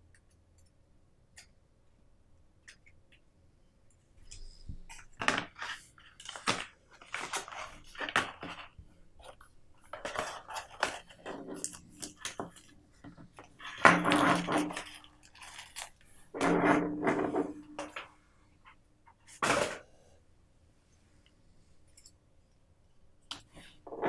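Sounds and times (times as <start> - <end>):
paper and cardboard rustling: 4.5 - 16.2.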